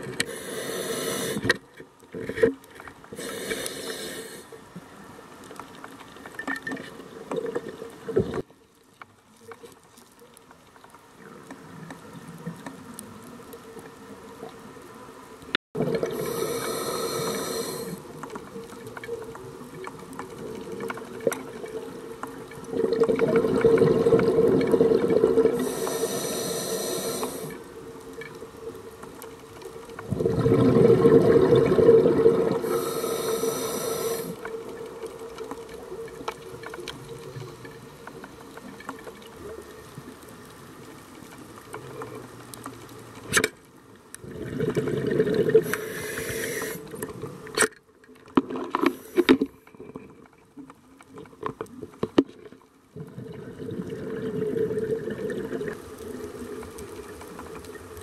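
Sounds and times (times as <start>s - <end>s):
underwater wash: 0.0s - 58.0s
scuba regulator bubbling exhalations: 22.6s - 27.6s, 30.0s - 34.4s, 44.2s - 47.2s, 52.9s - 55.9s.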